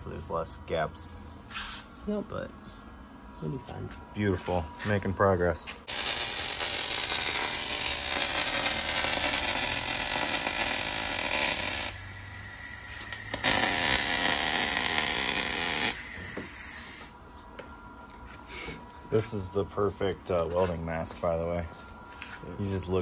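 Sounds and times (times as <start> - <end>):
welding arc crackling: 5.9 - 17.2.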